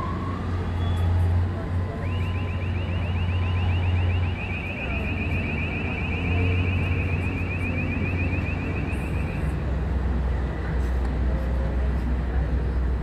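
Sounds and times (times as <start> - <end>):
diesel engine rumbling: 0.0 - 13.0
electronic alarm chirps: 2.0 - 9.5.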